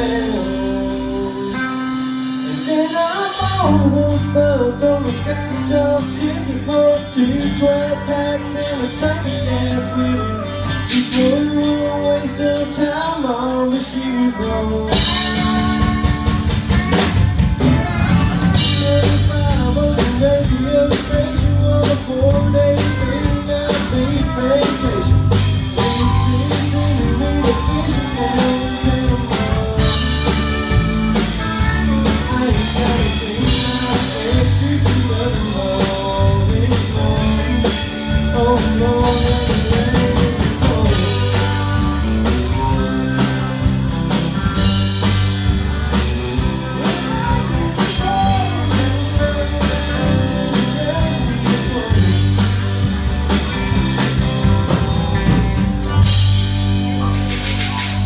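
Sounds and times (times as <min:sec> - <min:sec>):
band playing country-rock: 0:00.0 - 0:58.0
drum kit steady beat: 0:14.9 - 0:58.0.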